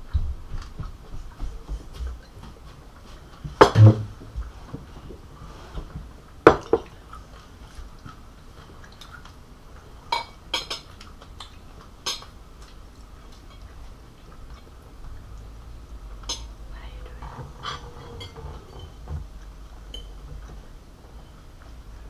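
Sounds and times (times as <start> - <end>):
cutlery clinking on plates: 10.1 - 10.9, 16.2 - 16.5, 19.9 - 20.2.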